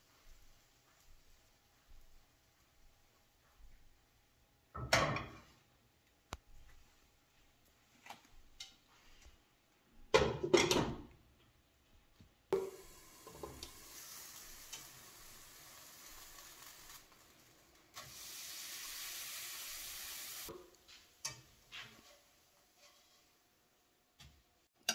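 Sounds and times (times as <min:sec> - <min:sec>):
batter sizzling in frying pan: 0:00.0 - 0:03.0, 0:12.5 - 0:24.0
cookware clattering: 0:04.8 - 0:05.5.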